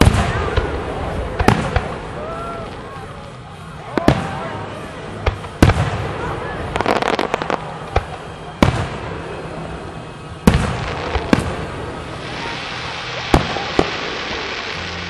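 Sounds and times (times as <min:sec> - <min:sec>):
firework bangs echoing: 0:00.0 - 0:15.0
rising hiss: 0:03.8 - 0:15.0.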